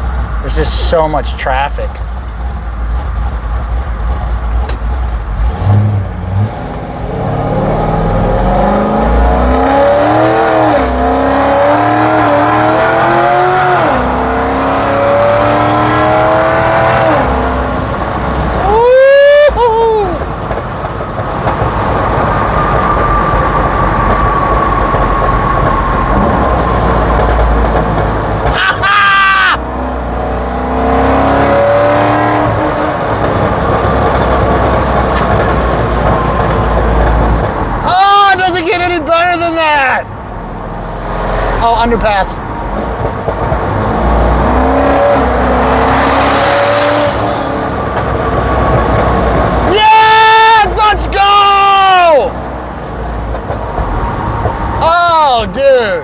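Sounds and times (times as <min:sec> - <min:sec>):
car engine accelerating: 0:00.0 - 0:38.2, 0:38.8 - 0:56.0
engine revving: 0:04.6 - 0:18.9, 0:21.4 - 0:37.5, 0:40.7 - 0:49.8.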